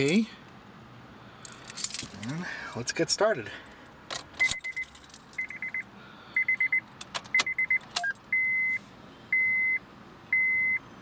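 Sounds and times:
keys jingling in ignition: 1.4 - 2.4, 4.1 - 5.8
dashboard warning chime beeping: 4.4 - 10.9.

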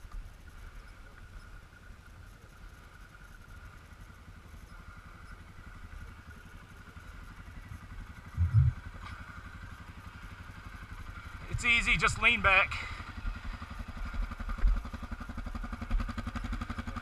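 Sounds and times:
atv engine idling: 0.0 - 17.0
low double thump: 8.4 - 8.8.

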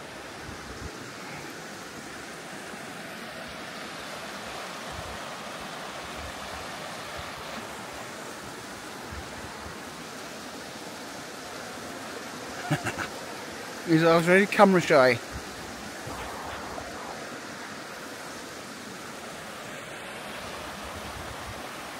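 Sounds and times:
stream rushing over stones: 0.0 - 21.9
wind buffeting microphone: 15.3 - 18.2.

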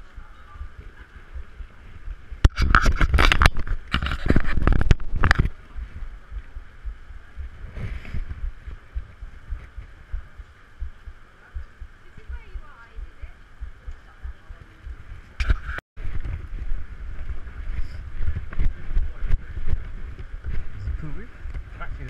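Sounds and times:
crackling rush of noise: 0.0 - 22.0
wind buffeting microphone: 0.0 - 22.0.

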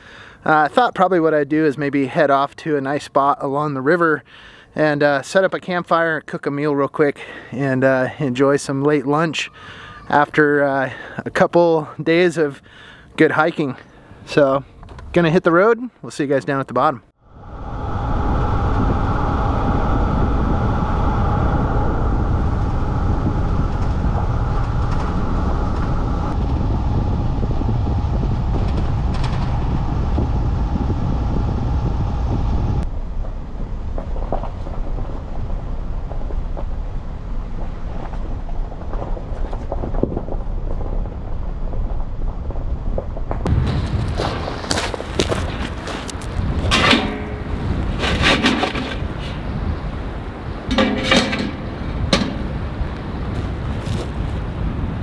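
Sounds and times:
van engine and road rumble: 20.6 - 55.0
tyres crunching on gravel: 43.4 - 49.5, 51.3 - 54.6.

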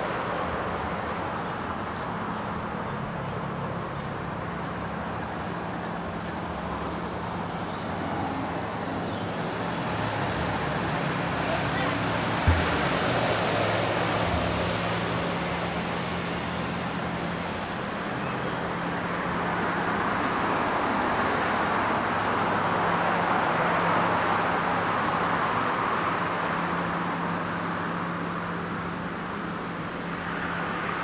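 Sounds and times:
road traffic passing: 0.0 - 31.0
low thump: 12.4 - 13.1.

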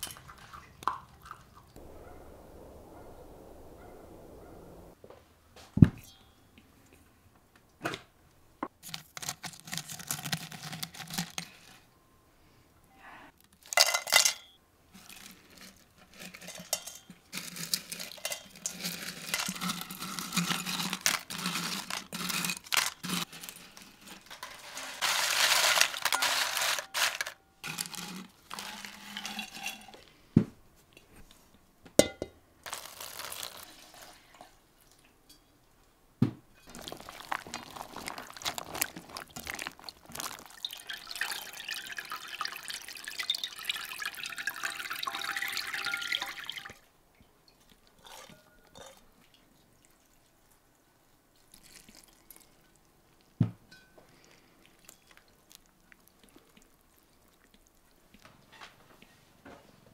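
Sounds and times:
dried mushrooms rustling and clattering: 14.9 - 30.2, 32.6 - 34.6, 36.6 - 42.0
clinks of glass and enamel: 53.7 - 54.1.

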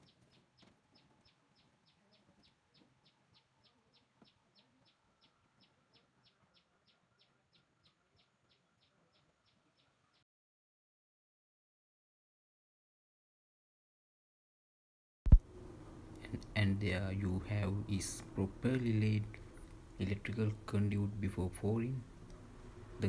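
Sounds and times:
faint outdoor ambience: 0.0 - 10.2, 15.3 - 23.0.

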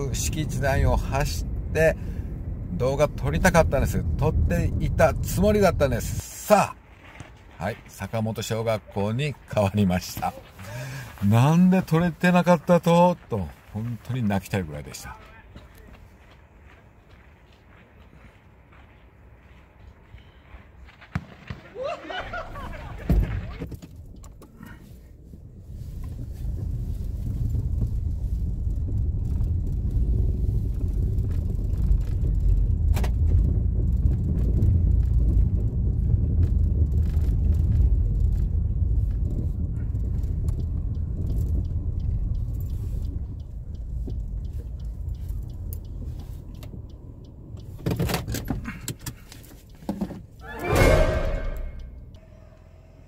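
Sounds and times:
car engine and road noise: 0.0 - 21.2, 22.9 - 53.0
light clicks: 39.1 - 49.9.

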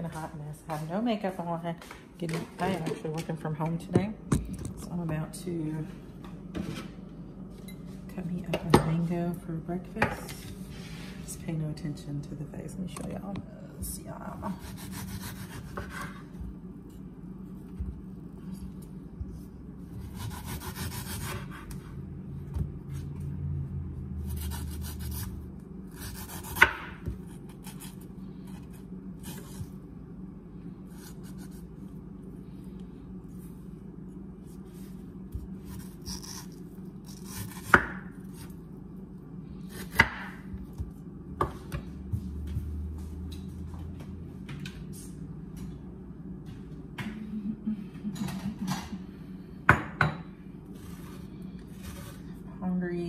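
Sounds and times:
low steady hum: 0.0 - 53.0
knife scraping fruit: 14.5 - 18.9, 19.9 - 21.9, 24.3 - 29.8, 30.8 - 32.0, 34.1 - 38.6, 50.8 - 52.4.

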